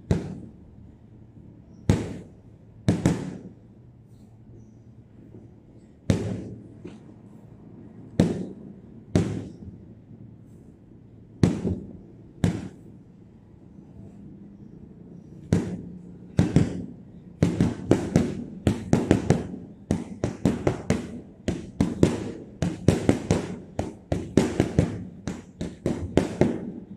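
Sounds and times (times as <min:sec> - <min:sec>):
gloves punching heavy bag: 0:15.4 - 0:26.8.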